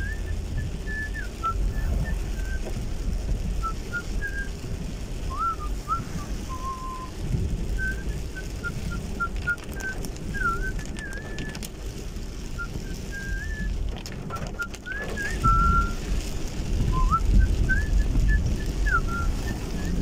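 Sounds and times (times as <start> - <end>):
person whistling: 0.0 - 2.6, 3.6 - 4.5, 5.3 - 7.1, 7.8 - 11.6, 12.6 - 13.7, 14.3 - 16.0, 16.9 - 20.0
car cabin road rumble: 0.0 - 20.0.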